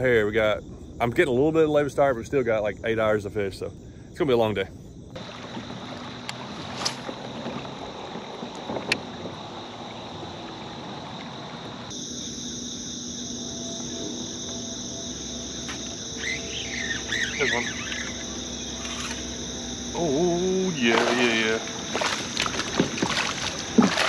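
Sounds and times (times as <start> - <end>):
night insects chorus: 0.0 - 24.0
bird chirping: 14.8 - 21.8.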